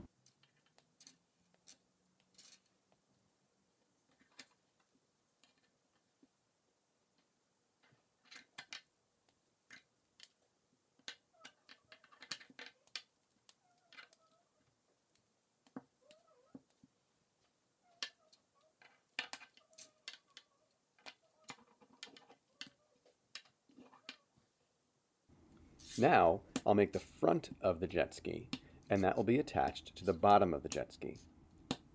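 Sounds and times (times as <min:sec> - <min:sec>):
plastic parts clicking together: 0:07.8 - 0:08.9, 0:11.0 - 0:14.3, 0:18.8 - 0:24.2.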